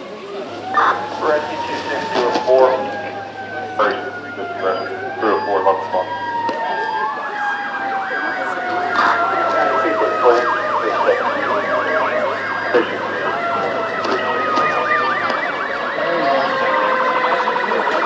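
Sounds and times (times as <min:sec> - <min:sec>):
fast pulsing siren: 0:00.0 - 0:18.0
wailing sirens: 0:00.0 - 0:18.0
yelping siren: 0:00.0 - 0:18.0.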